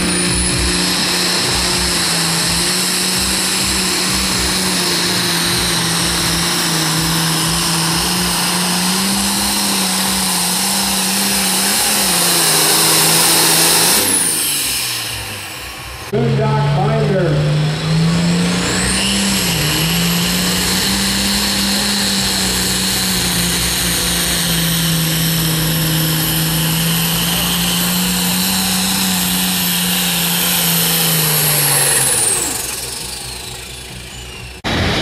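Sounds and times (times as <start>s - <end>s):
tractor diesel engine under load: 0.0s - 35.0s
high whistle: 18.7s - 20.3s.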